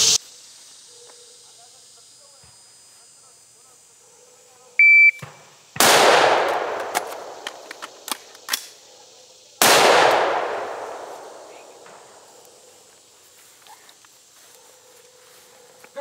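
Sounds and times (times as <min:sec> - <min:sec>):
shot timer beep: 0:04.8 - 0:05.2
rifle shot echoing: 0:05.8 - 0:08.6, 0:09.6 - 0:12.2
magazine change clicks: 0:05.9 - 0:08.8.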